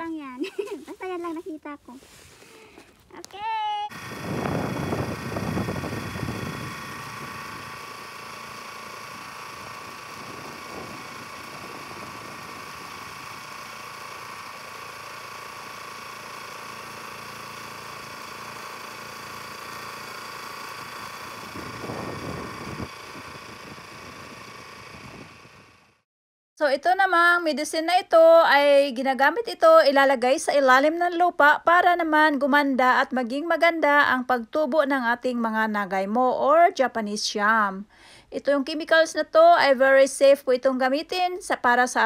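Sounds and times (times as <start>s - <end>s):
small cultivator engine running: 3.9s - 26.0s.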